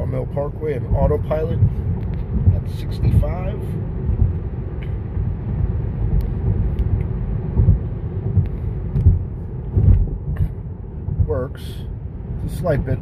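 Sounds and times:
road and tyre rumble: 0:00.0 - 0:13.0
car bumps: 0:06.0 - 0:11.6.

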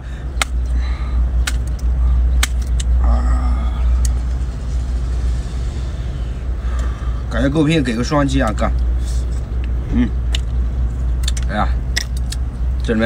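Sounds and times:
low rumble: 0:00.0 - 0:13.0
person humming: 0:03.0 - 0:04.2.

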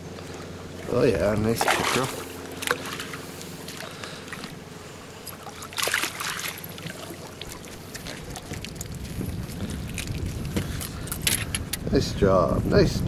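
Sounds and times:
splash in lake: 0:01.5 - 0:03.2, 0:05.5 - 0:09.2.

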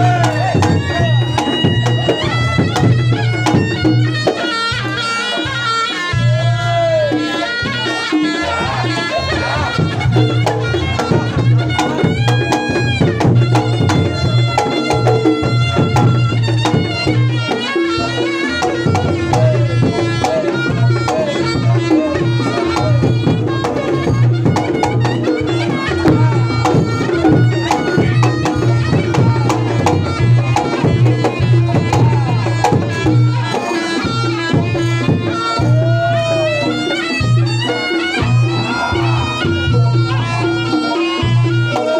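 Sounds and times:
hand drum strokes: 0:00.0 - 0:41.9
reedy shawm melody: 0:00.0 - 0:41.9.

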